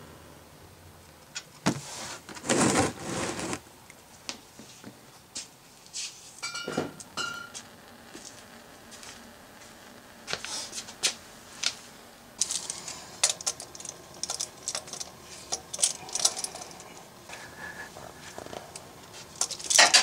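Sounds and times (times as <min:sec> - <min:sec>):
light metallic clinks: 0:12.4 - 0:17.0.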